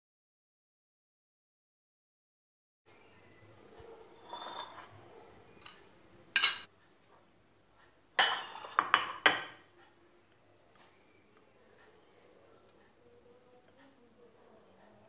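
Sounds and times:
dishes clattering on stone countertop: 4.0s - 6.7s, 8.1s - 9.7s.

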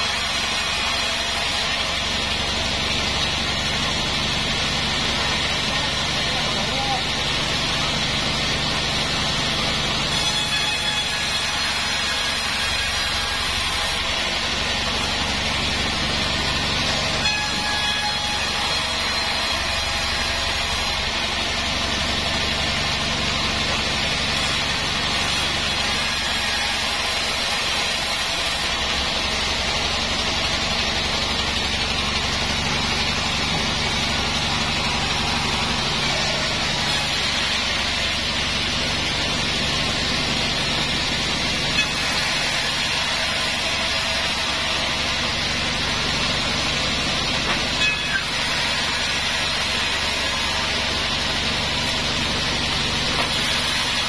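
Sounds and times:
band saw cutting wood: 0.0s - 54.0s.

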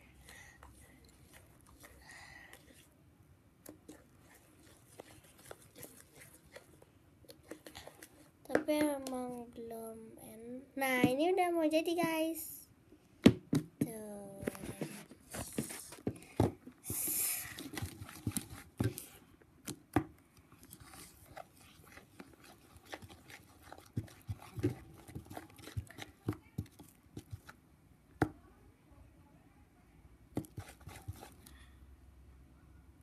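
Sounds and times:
spatula knocking and scraping bowl: 14.4s - 19.0s, 20.7s - 27.5s, 30.4s - 31.5s
sticky slime pulling: 20.6s - 27.5s.

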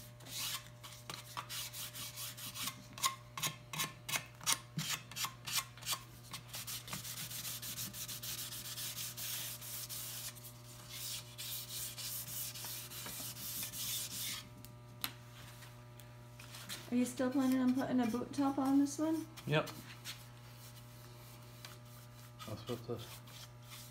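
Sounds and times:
sandpaper rubbing on wood: 0.3s - 2.8s, 6.5s - 14.4s, 17.3s - 23.9s.

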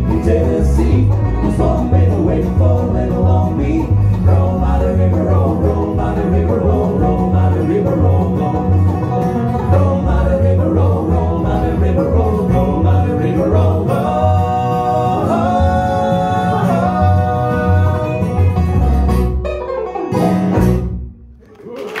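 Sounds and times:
harmony vocals singing: 0.0s - 8.7s, 9.7s - 18.5s
banjo: 0.0s - 21.1s
upright bass plucking: 0.0s - 21.4s
acoustic guitar: 0.0s - 21.7s.

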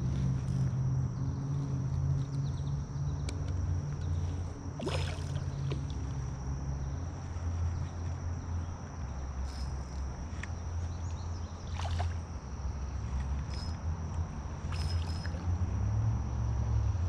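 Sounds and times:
low hum: 0.0s - 17.0s
high insect buzz: 3.8s - 16.9s
fish splashing in water: 4.8s - 6.0s, 11.6s - 12.4s, 14.6s - 15.4s.

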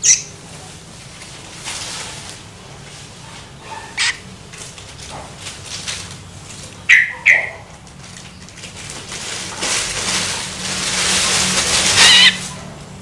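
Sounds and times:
bird begging calls: 0.0s - 0.3s, 3.8s - 4.2s, 6.8s - 7.7s, 11.9s - 12.5s.

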